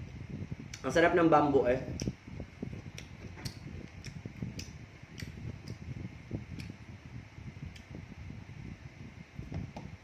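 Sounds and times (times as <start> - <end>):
wet mouth clicks and smacks: 1.9 - 2.2, 2.8 - 5.9, 6.5 - 6.8.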